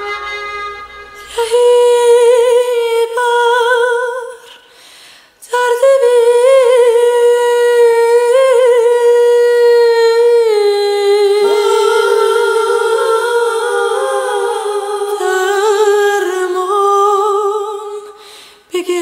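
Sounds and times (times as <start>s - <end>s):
wordless high vocal with vibrato: 6.0s - 18.2s.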